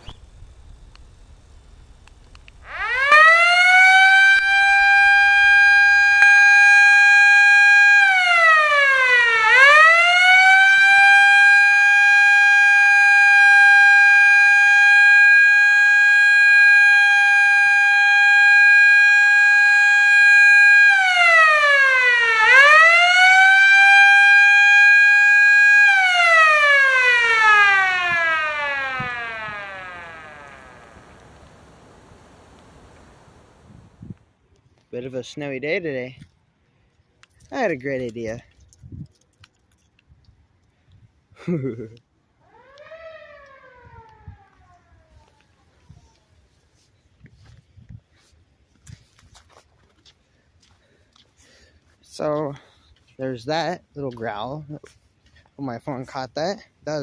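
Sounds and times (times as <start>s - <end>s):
electromechanical siren wailing: 0.0s - 34.2s, 42.4s - 46.9s.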